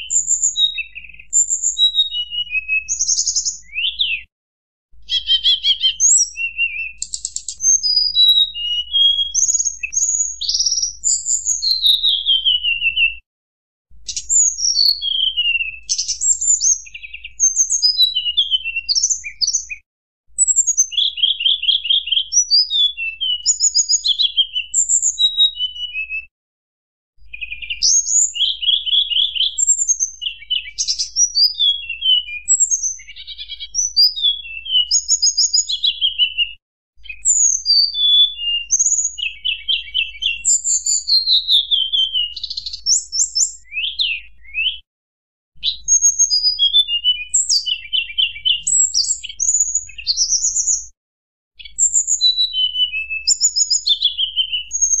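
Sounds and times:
songbird singing whistles and trills: 0:00.0 - 0:04.3, 0:05.0 - 0:13.3, 0:14.0 - 0:19.8, 0:20.4 - 0:26.3, 0:27.2 - 0:44.9, 0:45.6 - 0:51.0, 0:51.6 - 0:55.0.

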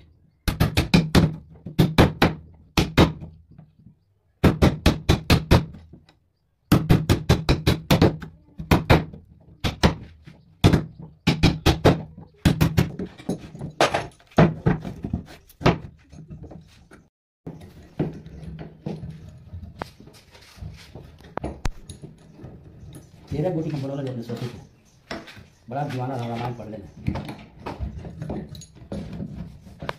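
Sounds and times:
soft scraping and light knocks: 0:15.0 - 0:29.9.

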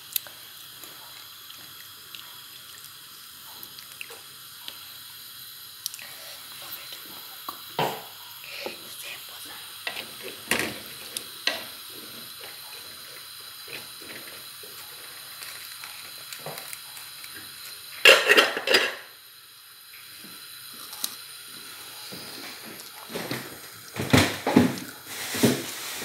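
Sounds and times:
low sizzle: 0:00.0 - 0:26.0
pot lid clattering: 0:18.0 - 0:19.1.

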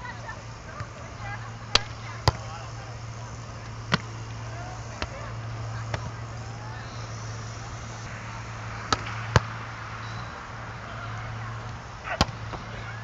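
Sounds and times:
steady low hum: 0:00.0 - 0:13.0
volleyball slaps: 0:00.7 - 0:02.6, 0:03.6 - 0:06.3, 0:08.8 - 0:10.0, 0:11.1 - 0:13.0.

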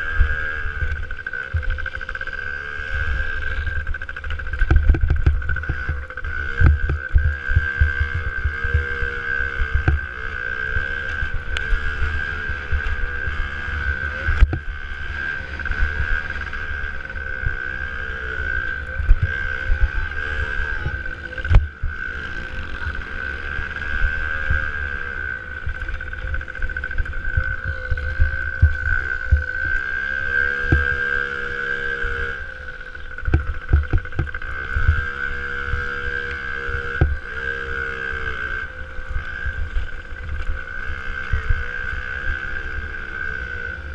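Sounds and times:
steady high whine: 0:00.0 - 0:43.9
two-stroke motocross engine: 0:00.0 - 0:43.9
low wind thumps: 0:03.8 - 0:10.1, 0:33.2 - 0:35.2.

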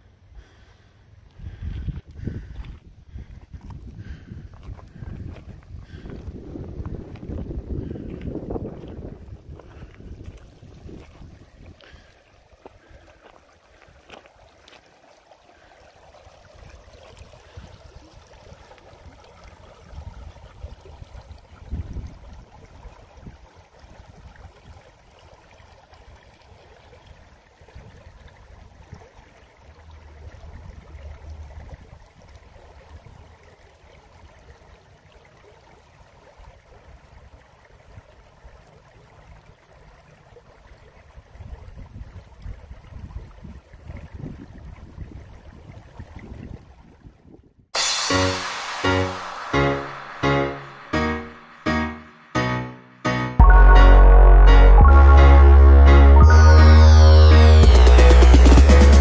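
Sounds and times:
wind buffeting microphone: 0:01.4 - 0:11.9, 0:21.1 - 0:23.4, 0:41.4 - 0:47.5
river rippling over gravel: 0:02.7 - 0:34.1.

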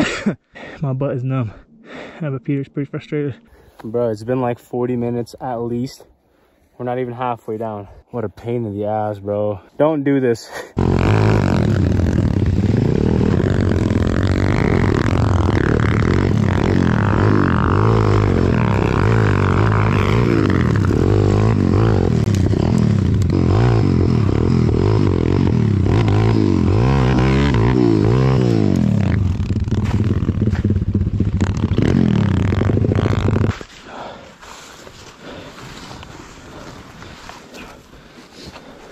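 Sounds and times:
pit bike engine revving: 0:10.8 - 0:33.6.

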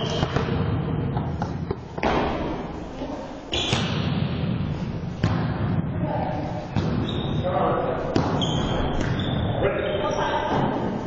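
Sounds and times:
volleyball slaps echoing: 0:00.0 - 0:02.8, 0:03.5 - 0:06.0, 0:06.7 - 0:07.2, 0:08.1 - 0:09.4.

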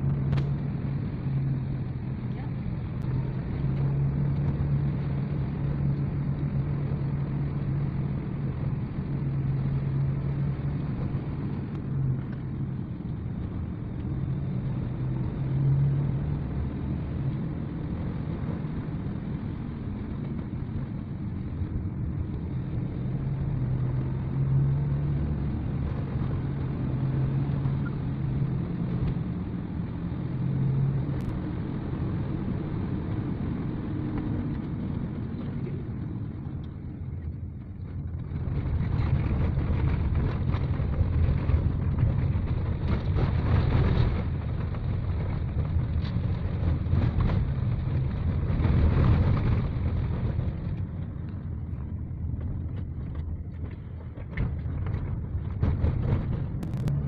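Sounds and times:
car engine and tyre noise: 0:00.0 - 0:57.0.

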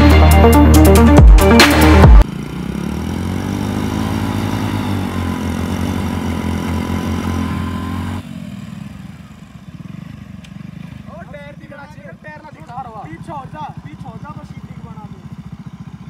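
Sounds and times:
motorcycle engine idling: 0:02.2 - 0:16.0.

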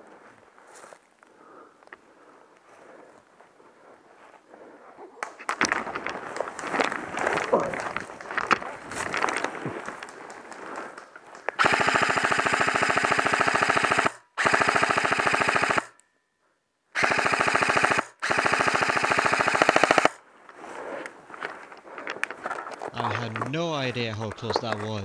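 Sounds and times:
airsoft rifle automatic fire: 0:11.6 - 0:16.0, 0:17.0 - 0:20.2.

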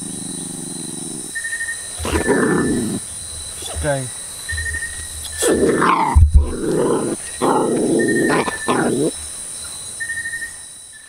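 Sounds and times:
dog growling and grunting: 0:00.0 - 0:01.4, 0:02.0 - 0:03.9, 0:05.4 - 0:09.1
low thump: 0:06.1 - 0:06.7.

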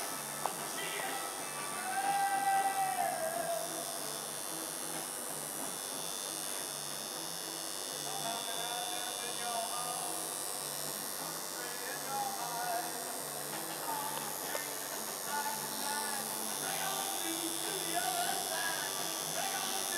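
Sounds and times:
tattoo machine buzzing: 0:00.0 - 0:19.9.

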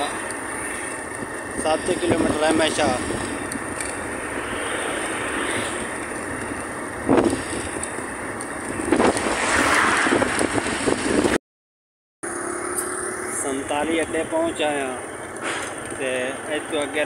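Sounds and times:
road noise from moving vehicle: 0:00.0 - 0:11.4, 0:12.2 - 0:17.0
wind noise: 0:00.9 - 0:11.4.

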